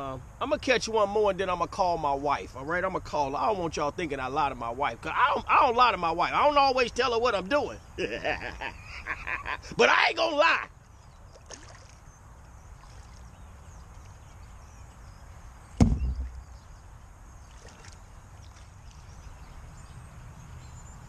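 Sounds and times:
wind on microphone: 14.2s - 16.7s
sharp knock: 15.8s - 16.4s.

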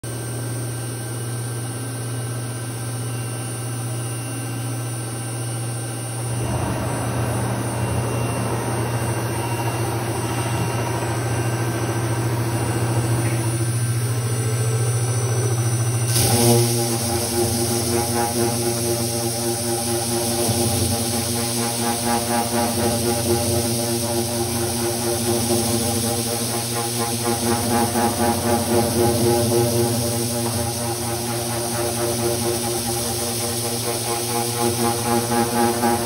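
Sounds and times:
cnc machine hum: 0.1s - 36.0s
sanding disc hiss on wood: 16.1s - 36.0s.

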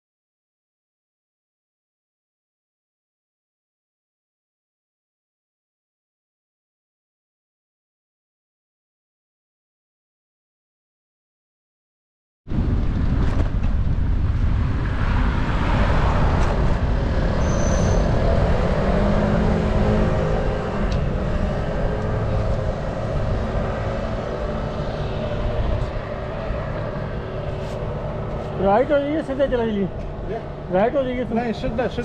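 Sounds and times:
wind rumble on microphone: 12.5s - 32.0s
passing car traffic: 12.6s - 32.0s
high squeak: 17.4s - 18.1s.

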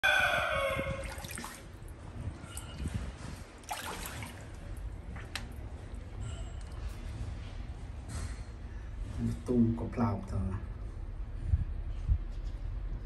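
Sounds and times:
water trickling and dripping: 1.0s - 5.7s
steady low rumble: 6.8s - 13.0s.

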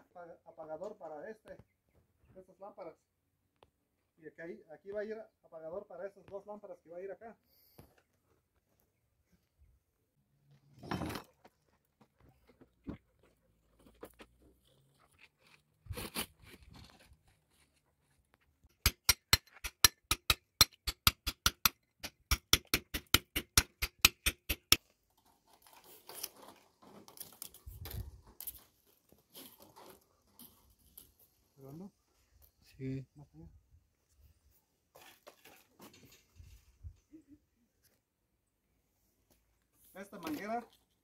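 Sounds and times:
hammer striking wooden formwork: 18.6s - 24.8s
scraping and handling noises: 24.8s - 31.5s, 34.9s - 36.8s.

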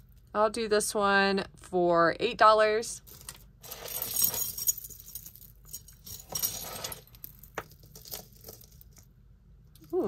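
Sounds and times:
jewelry jingling and clinking: 3.1s - 9.1s.

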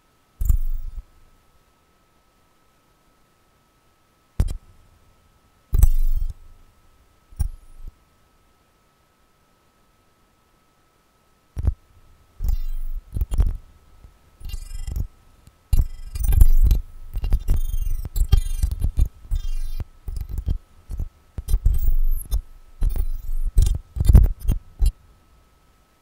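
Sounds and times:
faint steady high tone: 0.0s - 3.4s, 5.7s - 8.0s, 12.4s - 13.4s, 14.4s - 23.7s
crackling electronic clicks: 0.4s - 1.1s, 4.4s - 4.7s, 5.7s - 6.5s, 7.4s - 8.0s, 11.6s - 11.8s, 12.4s - 25.0s
low electronic thuds: 5.7s - 6.4s.

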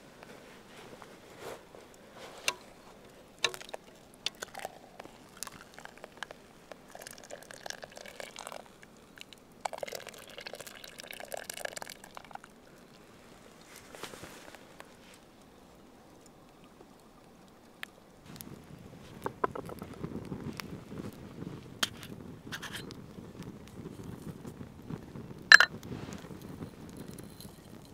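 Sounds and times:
metal bowl clinking: 25.5s - 25.7s.

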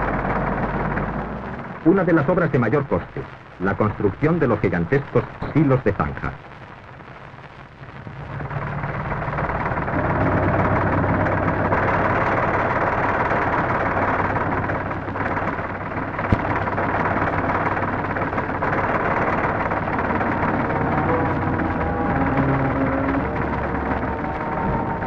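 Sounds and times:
heavy machinery engines working: 0.0s - 6.3s, 7.8s - 25.0s.

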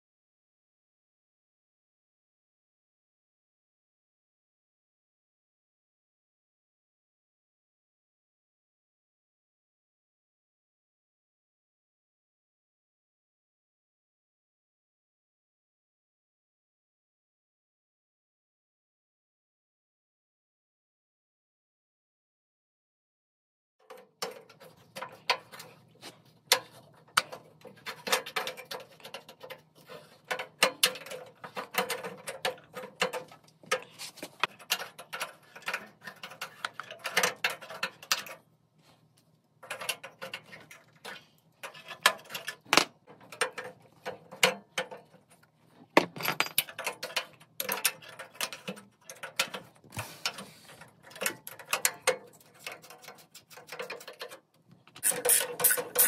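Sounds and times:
hand tools clicking and scraping metal: 23.9s - 38.5s, 39.6s - 56.0s.

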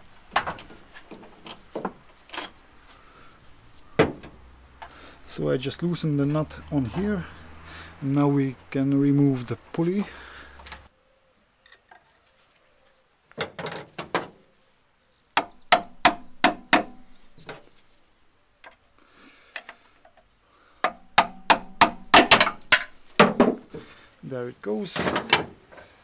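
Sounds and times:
hammer knocking on metal: 15.4s - 17.0s.

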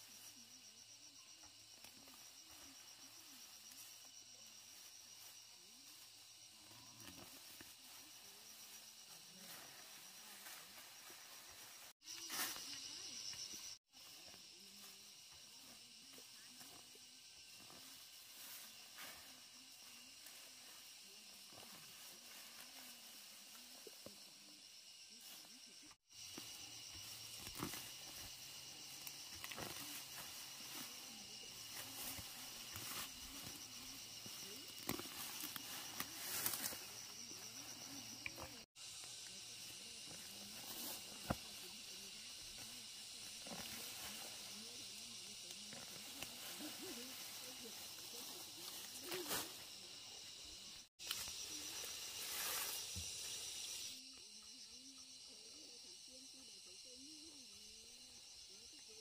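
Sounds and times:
insects chorus: 0.0s - 59.0s.

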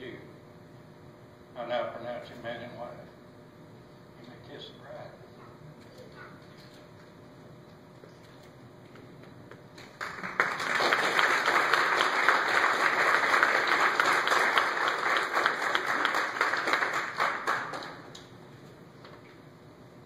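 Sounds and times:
crowd clapping: 9.8s - 18.2s.

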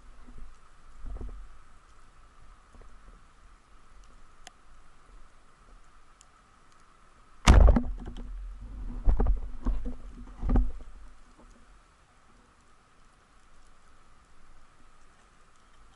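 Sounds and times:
speargun firing thunk: 7.5s - 8.2s.

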